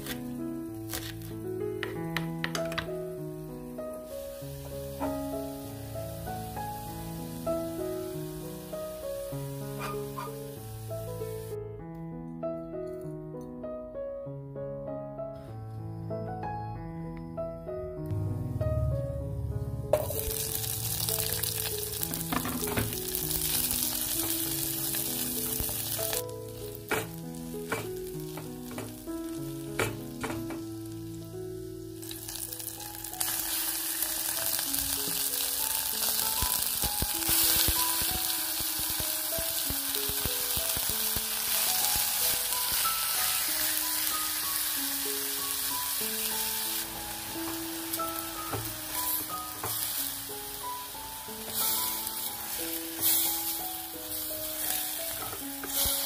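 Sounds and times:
aromatics sizzling in hot oil: 0.0s - 2.0s, 2.6s - 11.6s, 20.0s - 56.0s
background music: 0.0s - 56.0s
chicken frying and stirred: 4.4s - 5.5s, 6.5s - 10.6s, 20.0s - 30.9s, 31.9s - 56.0s.

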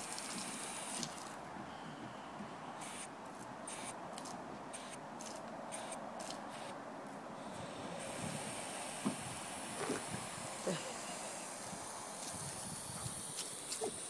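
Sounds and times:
garden hose spraying water: 0.0s - 1.4s, 2.8s - 3.1s, 3.7s - 6.8s, 7.4s - 14.0s.

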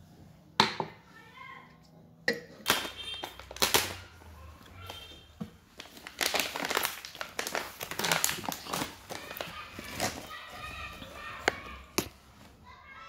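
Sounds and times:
rustling and crinkling: 4.6s - 12.8s.

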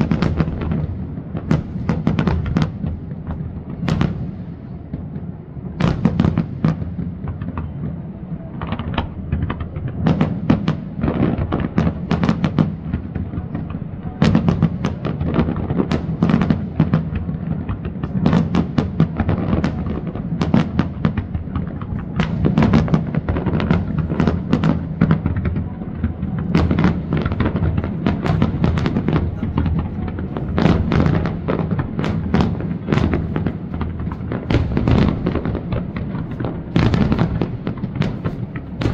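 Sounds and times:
continuous low rumble: 12.8s - 38.9s
firework shells bursting: 26.3s - 38.9s.

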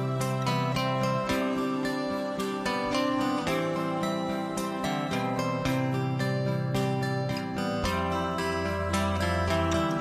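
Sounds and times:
plucked notes: 0.0s - 10.0s.

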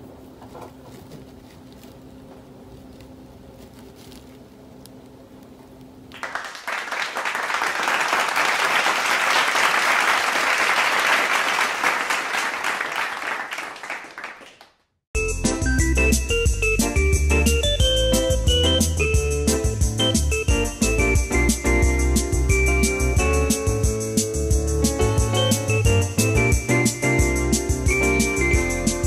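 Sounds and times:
crowd applause: 6.1s - 14.7s.

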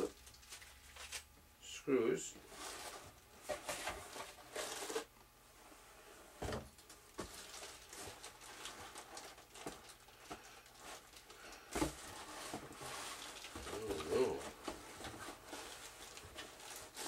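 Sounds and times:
cardboard rustling and scraping: 2.4s - 5.1s, 6.2s - 17.0s.

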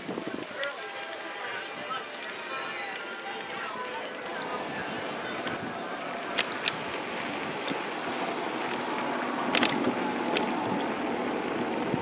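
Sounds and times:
bicycle rolling on wooden planks: 0.0s - 5.7s, 6.3s - 12.0s
sharp clicks and rattles: 6.3s - 12.0s.

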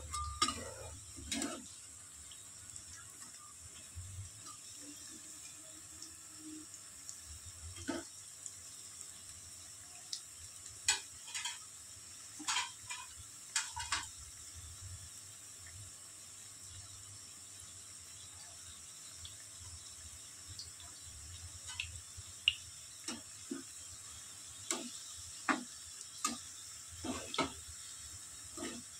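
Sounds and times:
metal utensil clinking on pan: 0.0s - 1.6s, 10.9s - 11.6s, 12.4s - 14.1s
food sizzling in hot oil: 0.0s - 28.9s.

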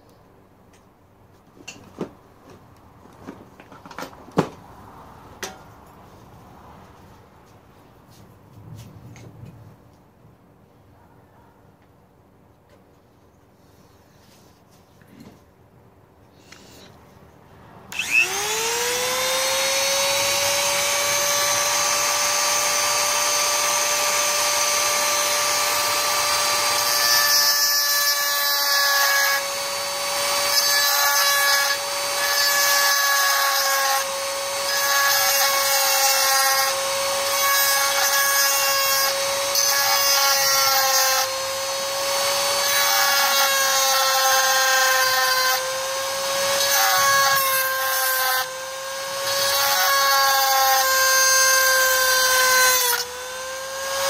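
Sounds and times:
rotary tool motor whine: 17.9s - 54.0s.

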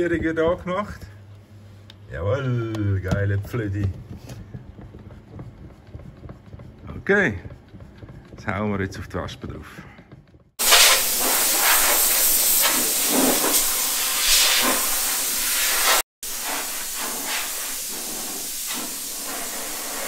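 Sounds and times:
spray gun hissing compressed air: 10.6s - 20.0s.

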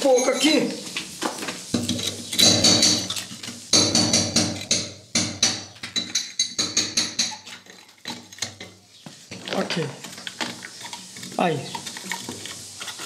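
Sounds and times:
hammer striking brick: 3.7s - 5.7s.

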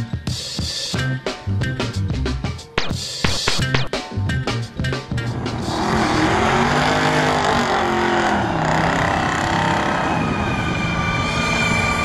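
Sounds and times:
cars accelerating hard: 5.0s - 12.0s.

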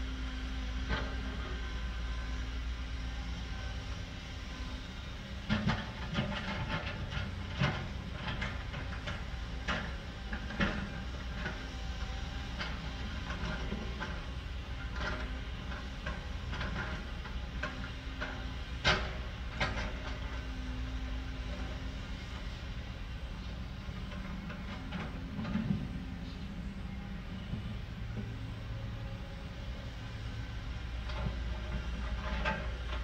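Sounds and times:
heavy machinery rumbling: 3.2s - 33.0s.

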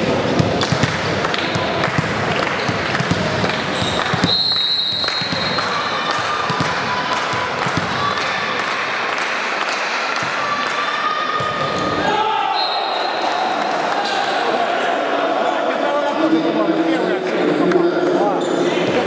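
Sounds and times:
people chattering: 0.0s - 19.0s
ball bouncing on floor: 0.4s - 8.0s
referee whistle: 3.8s - 5.6s, 12.5s - 13.2s.

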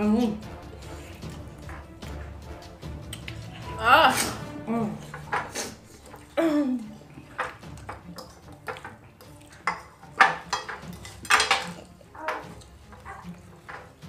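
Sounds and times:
forks clinking on ceramic plates: 7.3s - 13.9s.

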